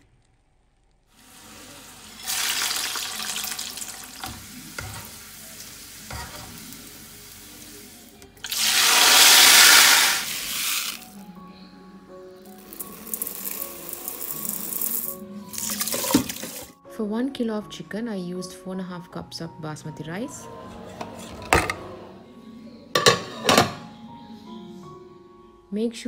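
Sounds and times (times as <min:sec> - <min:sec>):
faint background music: 0:01.0 - 0:26.0
nuts sizzling in hot oil: 0:01.1 - 0:11.2, 0:12.5 - 0:16.7.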